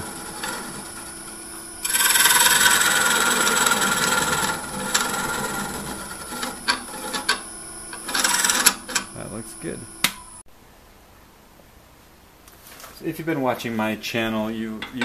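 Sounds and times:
carbide cutter scraping wood: 0.0 - 10.3
lathe running hum: 0.0 - 10.4.

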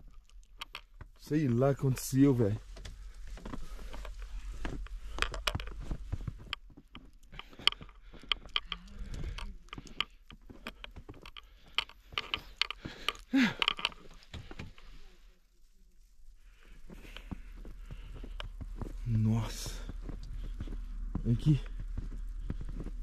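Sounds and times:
footsteps crunching in snow: 16.3 - 23.0.

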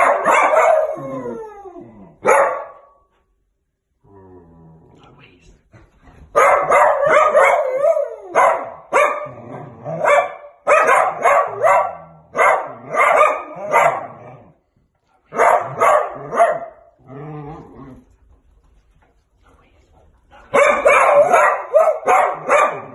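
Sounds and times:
dog barking: 0.0 - 1.0, 2.2 - 3.0, 6.3 - 14.3, 15.3 - 16.9, 20.5 - 22.9.

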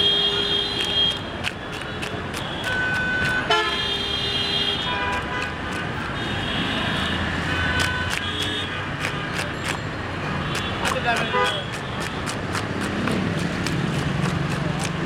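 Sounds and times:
street traffic noise: 0.0 - 15.0
sharp clicks: 0.8 - 3.5, 7.8 - 9.8
vehicle horns tooting: 2.5 - 5.5, 10.7 - 11.7.

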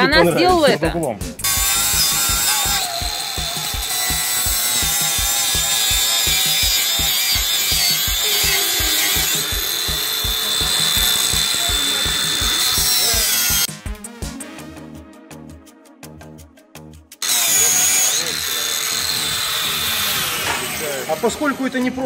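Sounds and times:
background music with fast beat: 0.0 - 18.0
angle grinder grinding steel: 1.4 - 13.7, 17.2 - 22.0.

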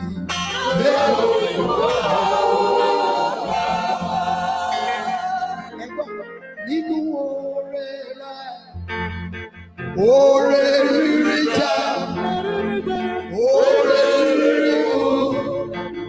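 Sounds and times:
band with bass line: 0.0 - 6.1
man singing into microphone: 10.0 - 12.2.

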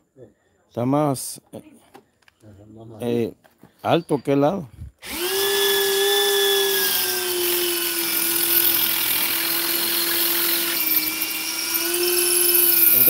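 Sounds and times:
electric drill boring a hole: 5.0 - 13.0.

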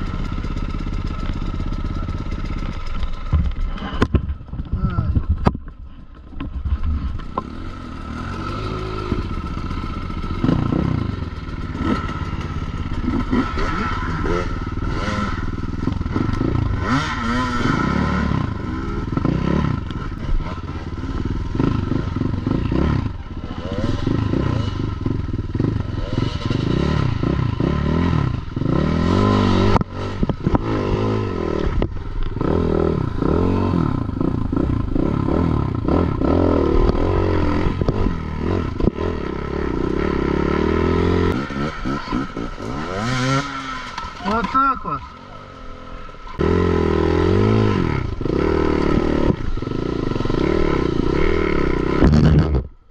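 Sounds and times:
motorcycle clatter: 0.0 - 17.3
motorcycle engine revving: 0.0 - 52.9.

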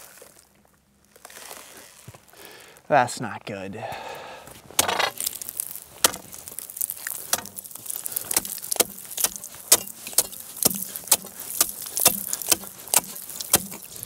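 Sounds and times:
steel bar chipping into ice: 4.8 - 14.0.

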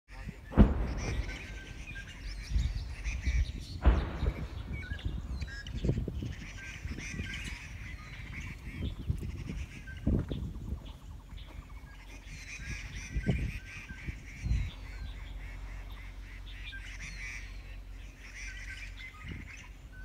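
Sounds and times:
low rumbling on microphone: 0.1 - 20.0
small birds chirping: 0.1 - 20.0
sharp bump: 0.5 - 5.5.

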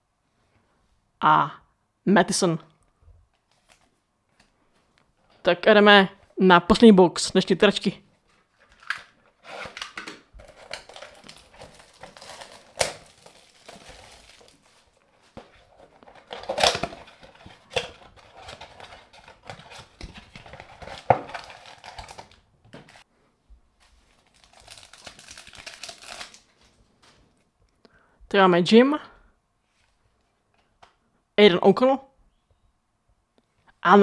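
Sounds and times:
plastic shrink wrap crinkling: 8.4 - 23.0, 23.9 - 27.3
foil pack crinkling and tearing: 8.7 - 23.0, 24.1 - 26.8.

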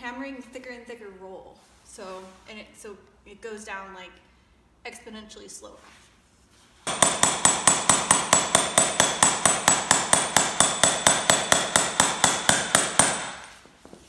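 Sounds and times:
hammer beating on metal punch: 6.9 - 13.5.

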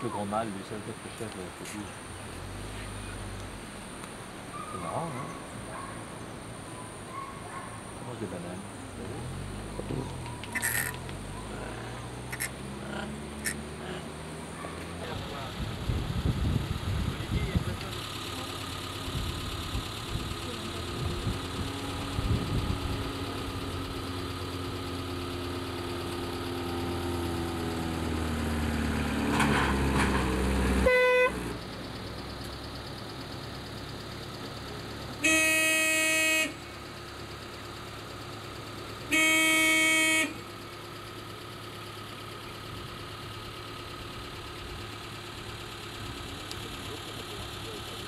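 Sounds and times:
vehicle engine running: 0.0 - 48.0
car horn honks: 30.8 - 31.4, 35.2 - 36.8, 39.0 - 40.6.

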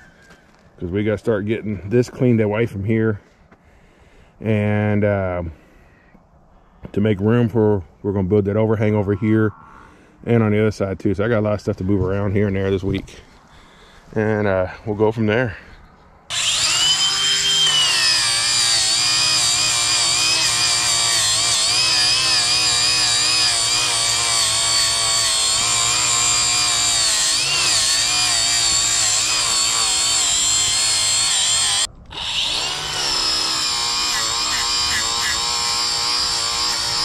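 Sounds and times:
power tool cutting: 16.3 - 37.0.

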